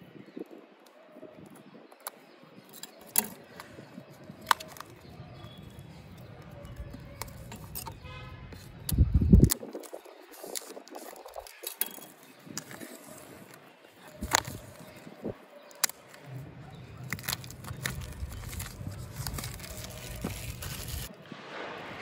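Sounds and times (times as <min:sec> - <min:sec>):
cardboard box handling rumble: 0:17.1 - 0:21.1.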